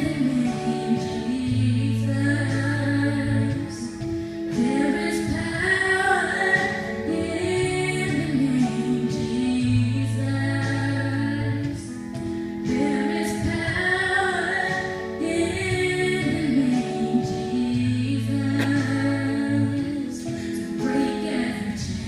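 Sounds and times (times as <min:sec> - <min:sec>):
band playing worship music: 0:00.0 - 0:22.0
woman singing: 0:00.0 - 0:22.0
held bass notes: 0:17.5 - 0:20.4.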